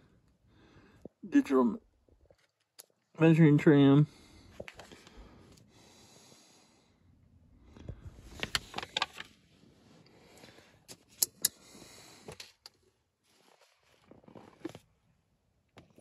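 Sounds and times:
paper pages rustling: 0:08.2 - 0:09.3.

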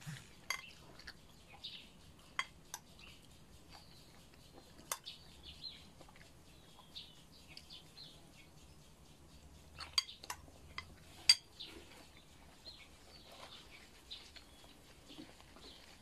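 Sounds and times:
birds chirping faintly: 0:00.0 - 0:16.0
spoon clinking against bowl: 0:00.4 - 0:00.8, 0:02.3 - 0:03.1, 0:04.8 - 0:05.2, 0:09.8 - 0:11.6.

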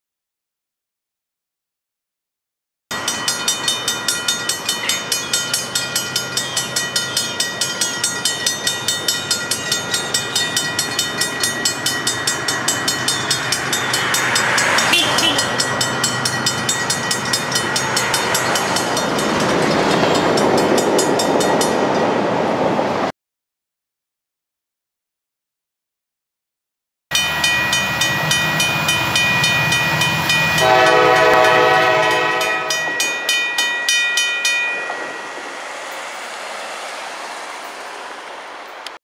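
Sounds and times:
railroad crossing bell ringing: 0:02.9 - 0:22.3, 0:27.1 - 0:38.8
train passing: 0:02.9 - 0:23.1, 0:27.1 - 0:39.0.

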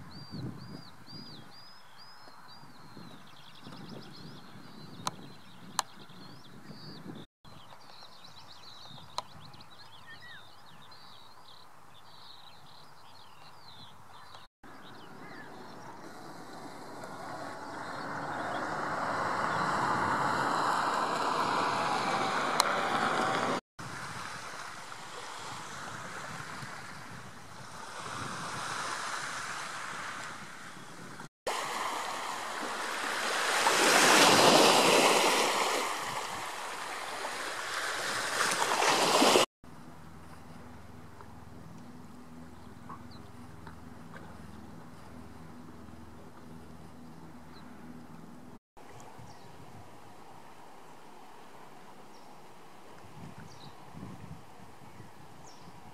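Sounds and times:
sea waves washing onto rocks: 0:31.5 - 0:39.5.

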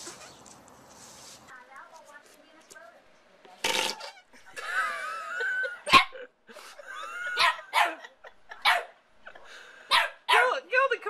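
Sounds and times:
small dog barking: 0:07.4 - 0:09.0, 0:09.9 - 0:10.6.

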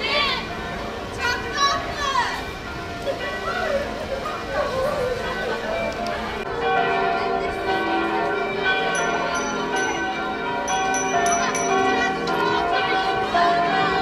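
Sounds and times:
bell-like music tones: 0:05.6 - 0:14.0.

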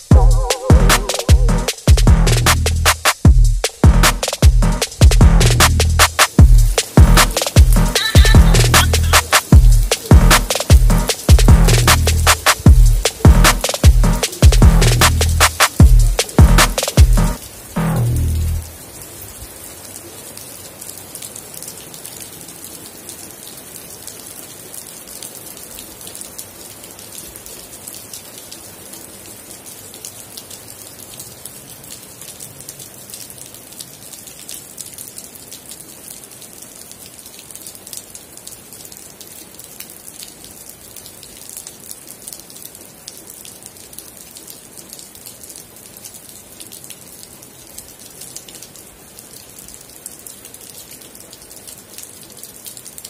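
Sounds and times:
raindrops ticking: 0:00.0 - 0:19.0
rain falling: 0:00.0 - 0:53.0.

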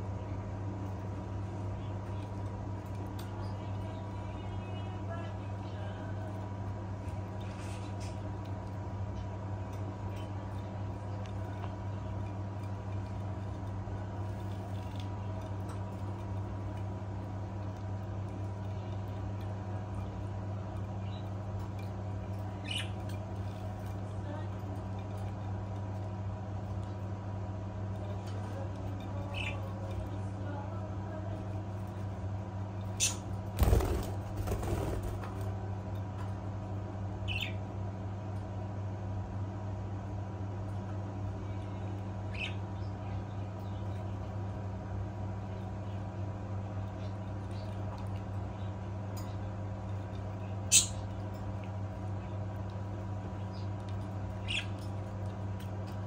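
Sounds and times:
steady low hum: 0:00.0 - 0:56.0
bird wings flapping: 0:33.6 - 0:35.5.

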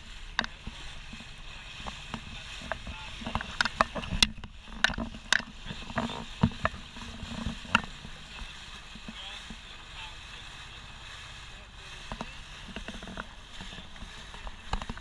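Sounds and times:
motorboat drone and hiss: 0:00.0 - 0:15.0.

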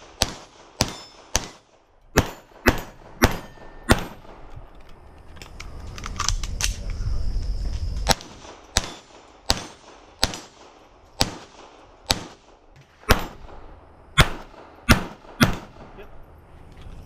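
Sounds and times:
pistol shots: 0:00.0 - 0:04.5, 0:08.0 - 0:16.0.

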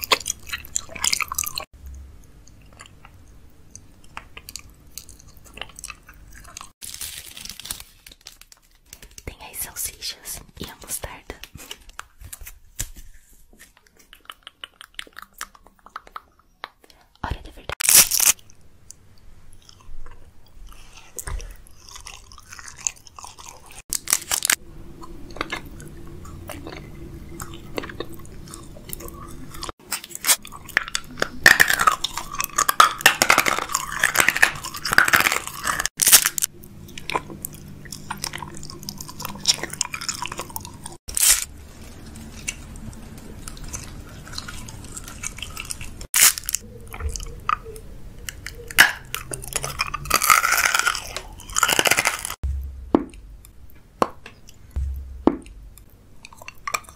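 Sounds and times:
biting and chewing sweets: 0:00.0 - 0:09.6, 0:10.2 - 0:56.9
loud crunching: 0:43.5 - 0:46.6, 0:48.8 - 0:53.4.

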